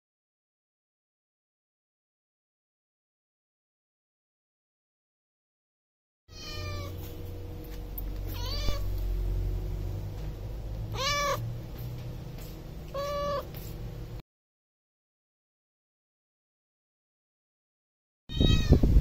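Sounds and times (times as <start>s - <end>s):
cat meowing: 6.3s - 7.0s, 8.3s - 9.0s, 10.9s - 11.5s, 12.9s - 13.6s, 18.3s - 18.9s
low background hum: 6.3s - 14.2s.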